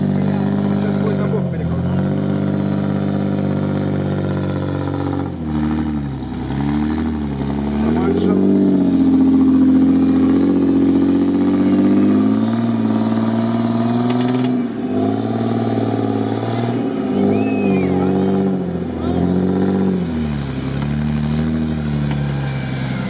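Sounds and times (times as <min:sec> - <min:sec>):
engine revving hard: 0:00.0 - 0:23.0.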